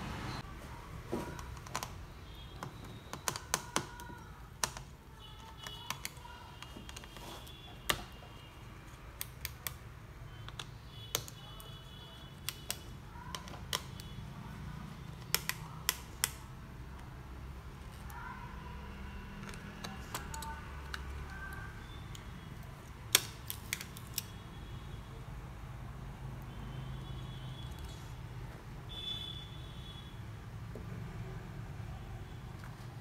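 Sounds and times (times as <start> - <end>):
hands clicking laptop internals: 1.3 - 14.2, 15.0 - 17.1, 19.3 - 24.4.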